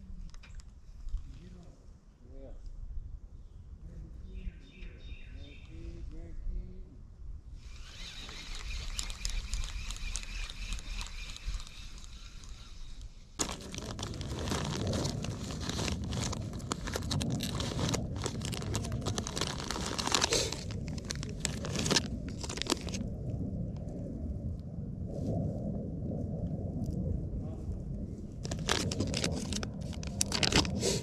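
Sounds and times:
plastic packets crinkling: 7.8 - 23.1, 28.4 - 31.0.

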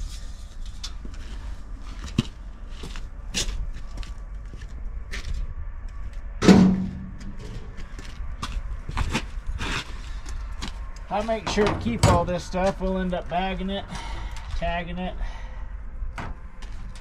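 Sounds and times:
loud thump with low ring: 6.4 - 7.5.

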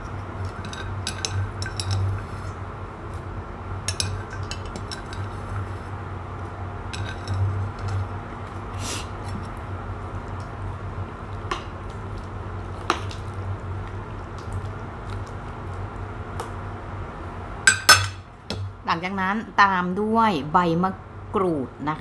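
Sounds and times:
spoon stirring pot: 0.0 - 2.6, 3.9 - 5.9, 7.0 - 8.1
low hum: 0.0 - 19.4
spoon clinking on metal pot: 17.7 - 18.2.

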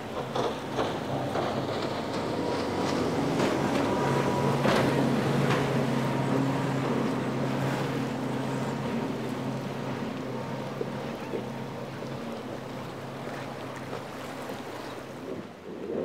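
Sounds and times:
outboard engine drone: 0.0 - 16.0
pontoons splashing through water: 0.0 - 16.0.

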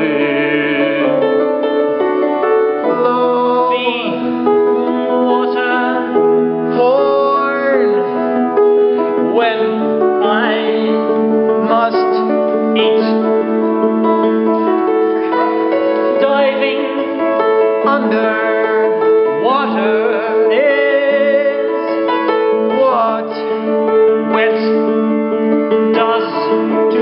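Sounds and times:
men singing: 0.0 - 1.2
keyboard chords: 0.0 - 27.0.

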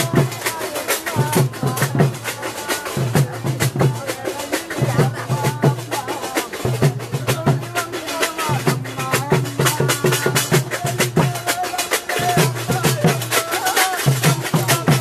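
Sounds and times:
procession drumming: 0.0 - 15.0.

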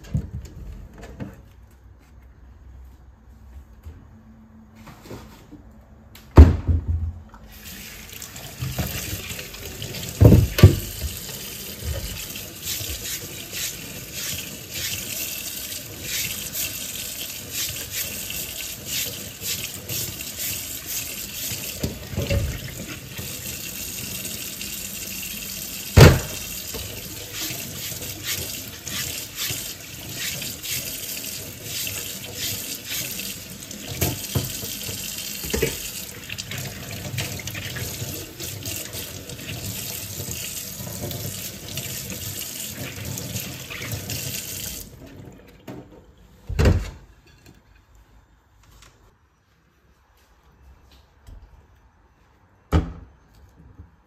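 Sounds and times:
brush scrubbing corn: 11.4 - 21.6, 27.0 - 33.7.

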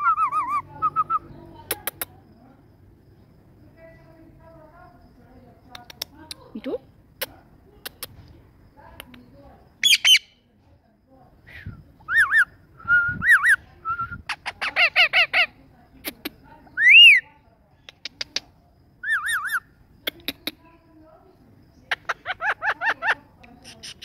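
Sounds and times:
sharp clicks: 5.7 - 6.5, 7.8 - 8.2, 17.8 - 18.5
parakeet squawking and chirping: 9.8 - 10.3.

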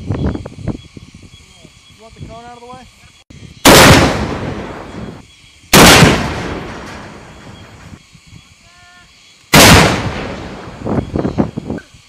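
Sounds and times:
recoilless rifle blasts: 3.6 - 7.9, 9.5 - 11.0.

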